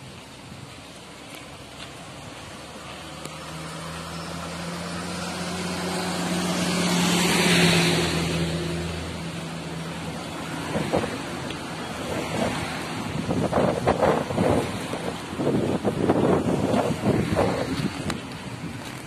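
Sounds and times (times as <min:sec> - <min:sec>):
vehicle passing on road: 0:00.0 - 0:19.0.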